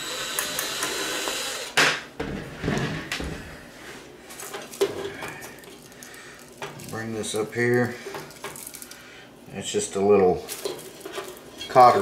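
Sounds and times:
cordless drill whirring: 0.0 - 1.8.

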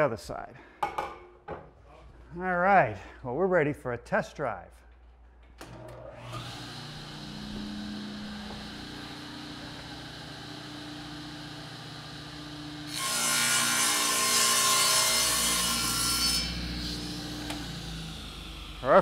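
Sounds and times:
saw blade cutting panel: 5.6 - 19.0
table saw motor hum: 5.6 - 19.0.

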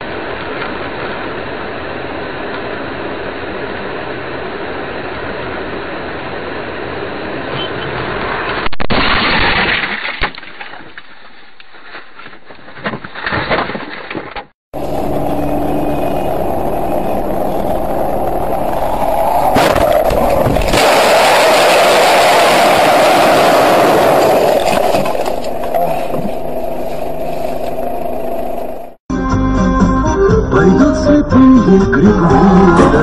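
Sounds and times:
car road and engine noise: 0.0 - 8.7, 14.2 - 29.0.

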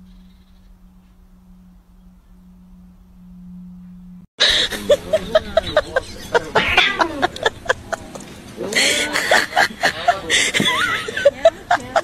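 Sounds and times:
wavering pitched calls: 0.0 - 7.9
faint low hum: 0.0 - 12.0.

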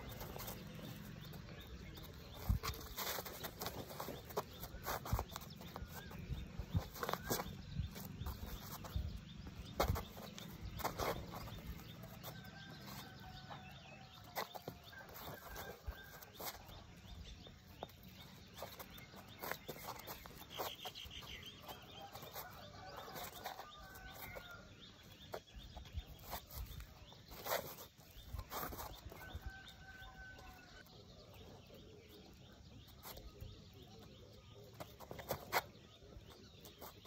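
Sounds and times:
shoes tapping on concrete: 0.0 - 13.6, 14.2 - 16.8, 17.4 - 24.7, 34.7 - 35.8
birds calling: 0.0 - 37.0.

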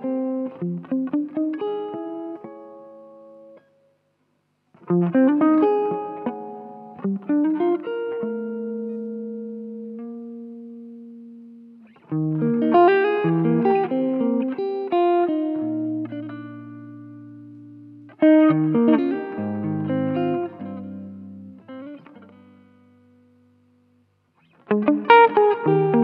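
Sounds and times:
clean electric guitar ballad: 0.0 - 3.7, 4.8 - 26.0.

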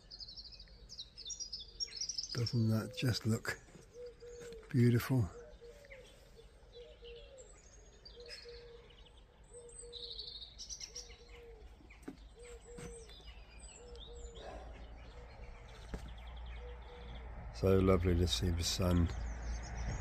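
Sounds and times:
birds chirping and trilling: 0.0 - 20.0.

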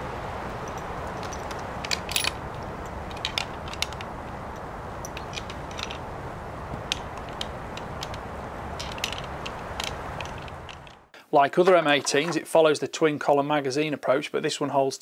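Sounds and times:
steady background noise: 0.0 - 12.8
rifle action being handled: 0.6 - 4.1, 5.0 - 6.0, 6.8 - 8.2, 8.8 - 11.0
cartridges clicking: 0.6 - 6.1, 6.7 - 11.0.

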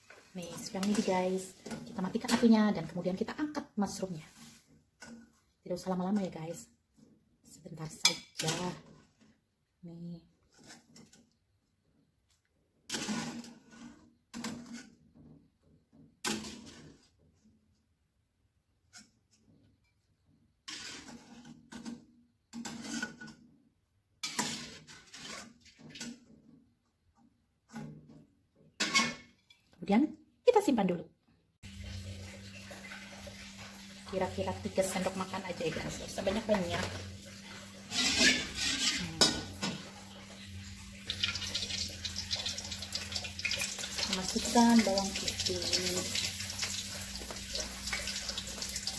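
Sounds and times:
metal spatula scraping a wok: 0.0 - 3.1, 12.9 - 15.2, 16.3 - 17.3, 20.6 - 22.0, 22.6 - 23.4, 24.2 - 26.4, 34.8 - 48.9
garlic sizzling in oil: 31.7 - 48.9
hot oil hissing: 40.5 - 48.9.

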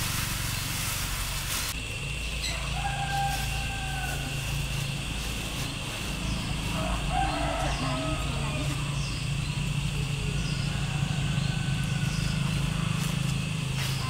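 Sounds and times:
plastic bag rustling: 0.0 - 1.8
steady low hum: 0.0 - 14.0
rooster crowing: 2.4 - 5.0, 6.4 - 13.6.

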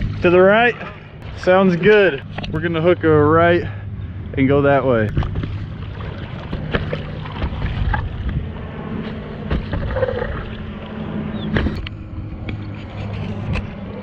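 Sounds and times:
steady rushing noise: 0.0 - 14.0
paddle strokes splashing water: 5.1 - 11.9.

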